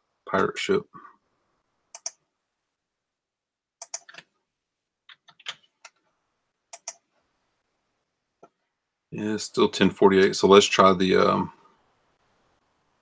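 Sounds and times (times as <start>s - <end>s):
computer clicks: 1.9s - 2.2s, 3.8s - 4.3s, 6.7s - 7.1s.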